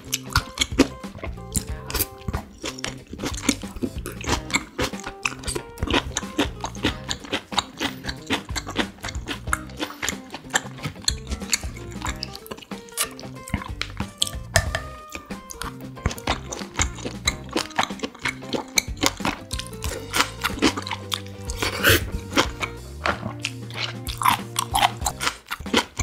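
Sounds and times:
background music: 0:00.0 - 0:26.0
close chewing and mouth sounds: 0:00.0 - 0:26.0.

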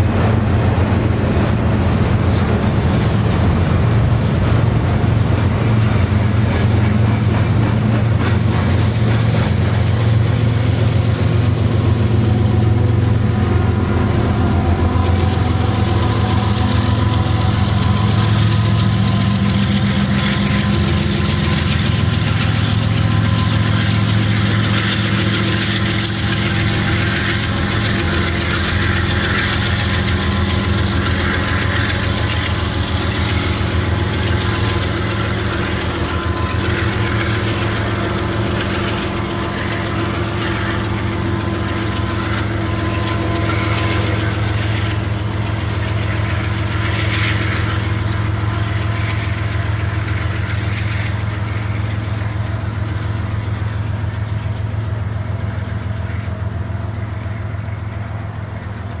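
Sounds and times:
diesel locomotive droning: 0:00.0 - 0:59.0
train wheels clattering on rails: 0:00.0 - 0:59.0.

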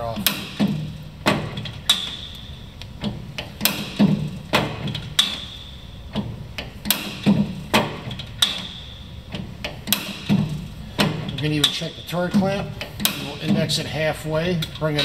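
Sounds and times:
ringing click of turret locking: 0:00.2 - 0:09.0
metallic clunks and clicks of lathe ram: 0:00.2 - 0:13.8.

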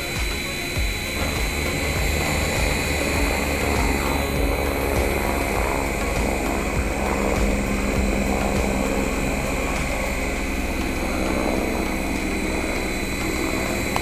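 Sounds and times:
high motor whine: 0:00.0 - 0:14.0
toy helicopter rotors buzzing: 0:00.0 - 0:14.0.

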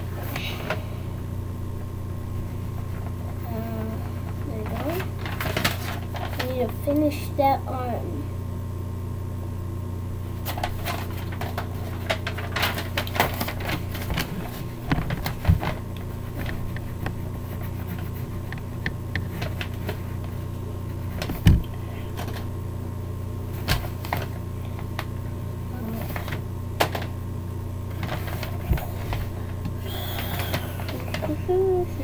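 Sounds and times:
steady low hum: 0:00.0 - 0:32.0
colouring strokes scratching paper: 0:16.1 - 0:18.8.

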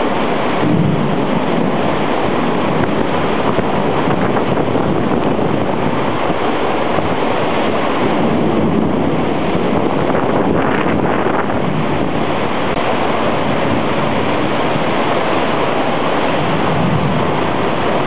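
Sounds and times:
hurricane wind and rain: 0:00.0 - 0:18.0
wind buffeting microphone: 0:00.0 - 0:18.0.

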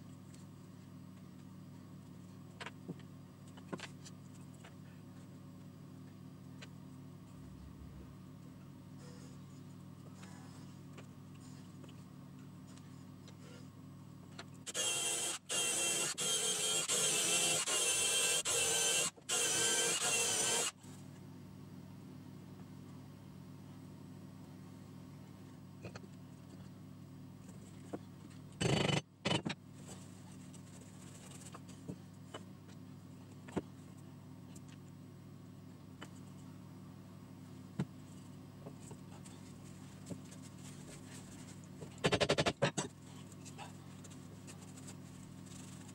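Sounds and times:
low steady hum: 0:00.0 - 0:42.0
cordless drill boring into wood: 0:14.7 - 0:20.7.

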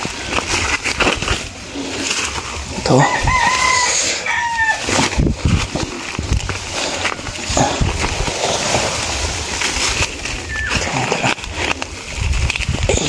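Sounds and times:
dry leaves and stalks crackling: 0:00.0 - 0:13.0.

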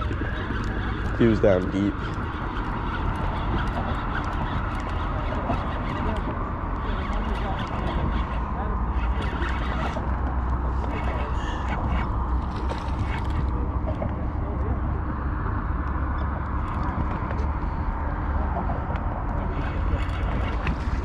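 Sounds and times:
fishing reel cranking: 0:00.0 - 0:13.6, 0:19.2 - 0:21.0
wind rumbling on microphone: 0:00.0 - 0:21.0.

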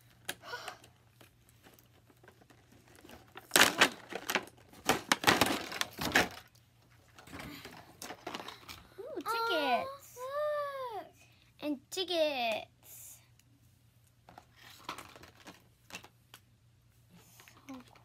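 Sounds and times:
packaging crinkling and rustling: 0:01.2 - 0:08.8, 0:14.3 - 0:16.1.

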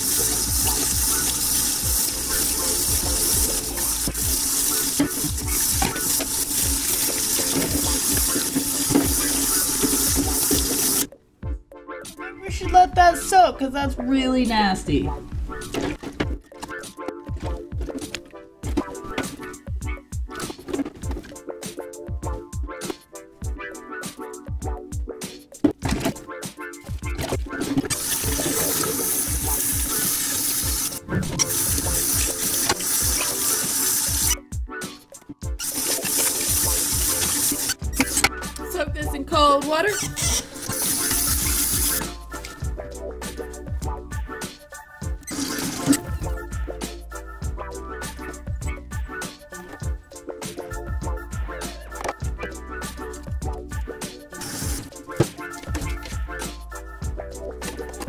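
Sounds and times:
faucet water splashing in sink: 0:00.0 - 0:11.1, 0:27.2 - 0:34.4, 0:35.6 - 0:38.4, 0:40.1 - 0:42.5, 0:45.2 - 0:46.1
background music with low beat: 0:00.0 - 0:58.0
tap running into sink: 0:03.0 - 0:11.1.

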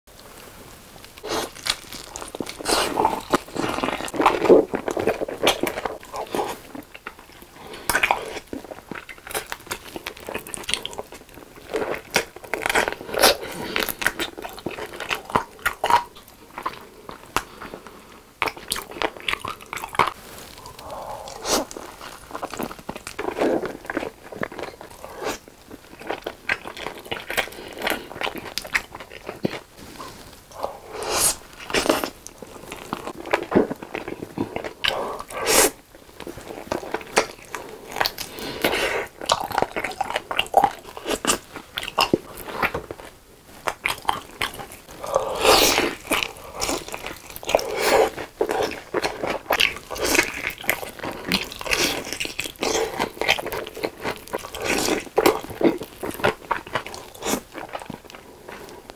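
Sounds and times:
crunchy chewing of fried chicken: 0:01.0 - 0:58.9.

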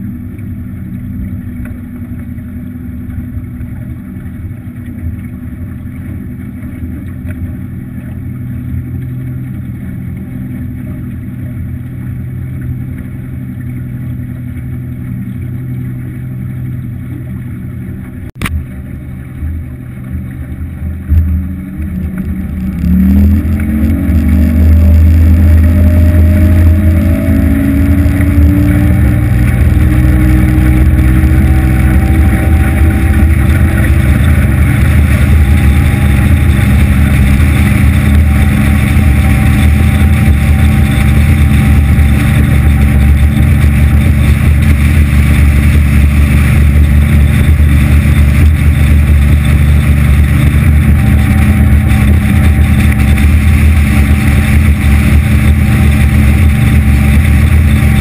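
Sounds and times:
outboard motor running: 0:00.0 - 0:58.0.

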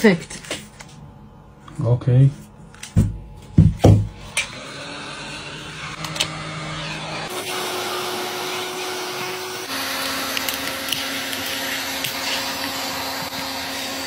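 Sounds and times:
heat gun blowing with whine: 0:03.9 - 0:14.0.

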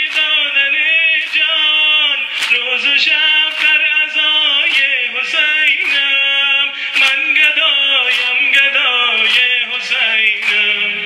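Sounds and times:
man singing a lament: 0:00.0 - 0:11.0
rhythmic chest-beating strikes: 0:00.0 - 0:11.0.

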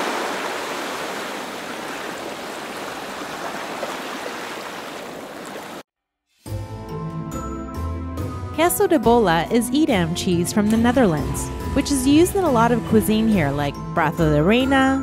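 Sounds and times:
music: 0:06.0 - 0:15.0.

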